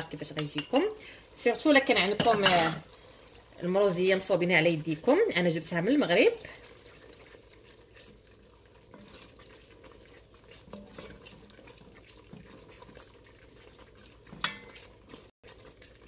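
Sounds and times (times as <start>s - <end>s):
stew sloshing: 2.9s - 16.0s
spoon knocking against pot: 14.4s - 14.7s.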